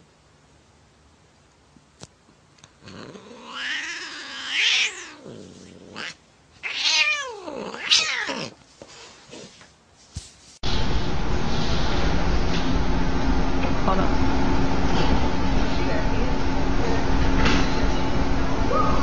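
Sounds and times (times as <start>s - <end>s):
angry cat yowling: 2.8s - 8.6s.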